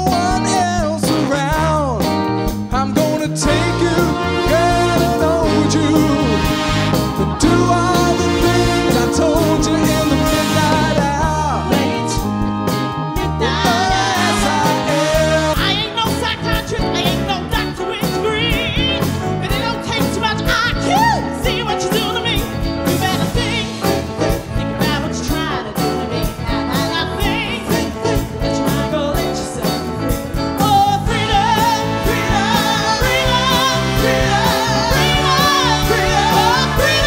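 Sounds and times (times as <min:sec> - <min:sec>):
soul band playing: 0:00.0 - 0:37.0
woman singing with vibrato: 0:13.2 - 0:16.0, 0:30.7 - 0:37.0.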